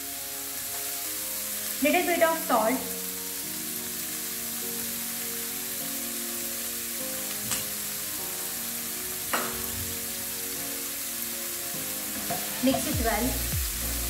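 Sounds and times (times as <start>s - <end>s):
background music: 0.0s - 14.0s
onions sizzling in oil: 0.0s - 14.0s
light knocks on pan: 9.3s - 9.7s, 12.2s - 13.0s.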